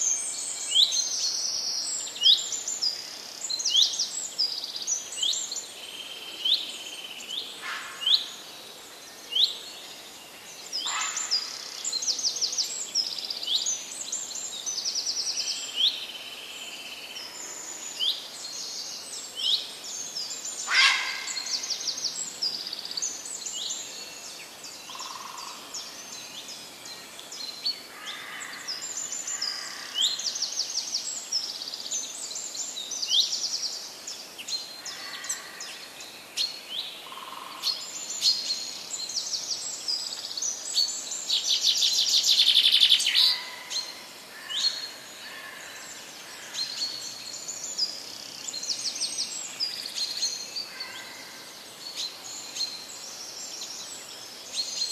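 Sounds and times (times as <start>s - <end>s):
faint outdoor hiss: 0.0s - 54.9s
small birds chirping: 9.0s - 54.9s.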